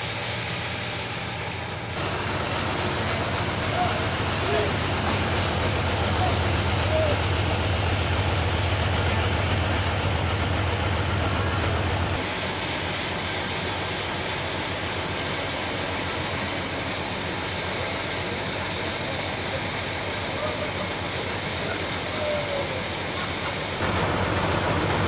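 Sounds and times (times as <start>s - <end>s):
strong low hum: 0.0s - 12.2s
sawmill machinery running: 0.0s - 25.0s.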